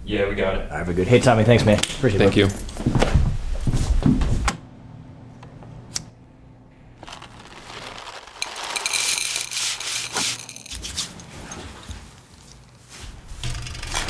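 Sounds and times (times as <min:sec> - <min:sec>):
sandpaper scratching wood: 0:08.4 - 0:11.1.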